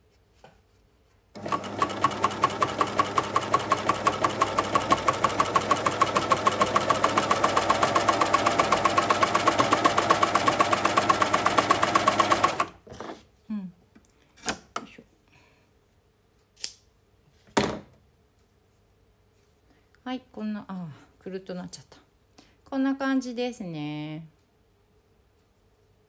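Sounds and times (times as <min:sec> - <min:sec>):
sewing machine running: 0:01.4 - 0:12.8.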